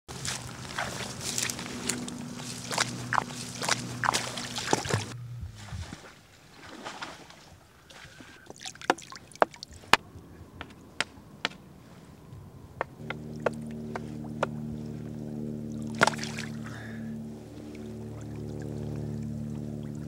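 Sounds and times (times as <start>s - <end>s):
held music chord: 0.1s - 5.9s, 13.0s - 20.0s
faint watery wash: 0.1s - 12.4s, 13.0s - 20.0s.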